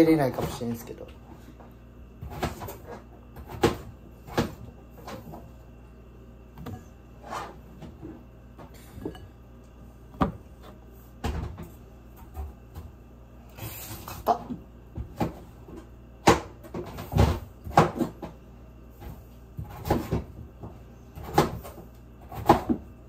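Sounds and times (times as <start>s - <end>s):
kitchen items knocking and clattering: 14.0s - 18.4s.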